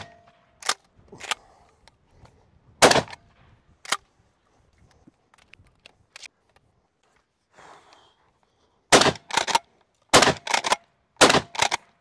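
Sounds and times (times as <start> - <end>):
shotgun shots: 2.8 - 3.2, 8.9 - 11.8
shotgun pump clacks: 9.0 - 11.8.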